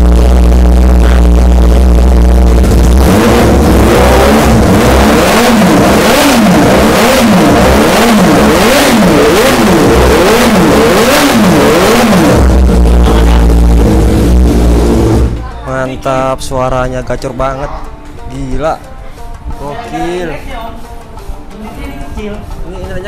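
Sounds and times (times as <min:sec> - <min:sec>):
motorcycle engine revving: 0:00.0 - 0:15.5.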